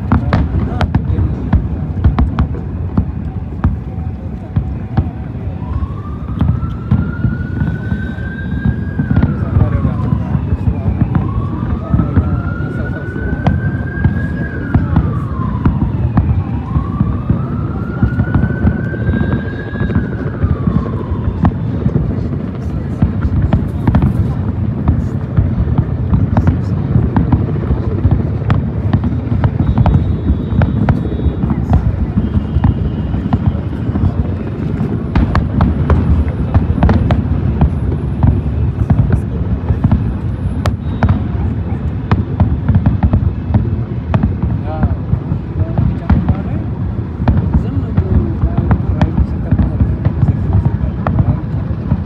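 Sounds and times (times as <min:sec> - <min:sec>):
siren wailing: 0:00.0 - 0:39.6
fireworks booming and cracking: 0:00.0 - 0:52.0.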